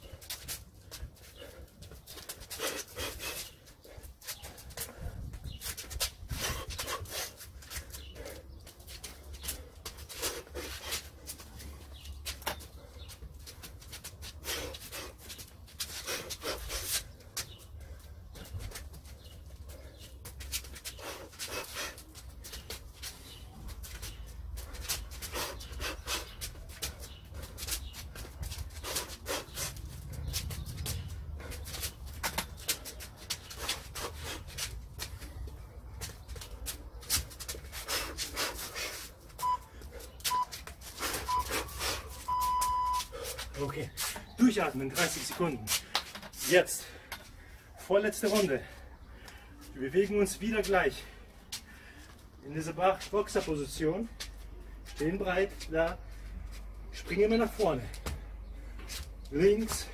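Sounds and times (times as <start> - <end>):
timer beeps: 39.4 - 39.7, 40.3 - 40.6, 41.3 - 41.6, 42.2 - 43.1
puffs of breath: 40.9 - 42.3, 43.0 - 44.2, 51.0 - 52.2
shoe scuffs and steps on tiles: 57.5 - 59.9.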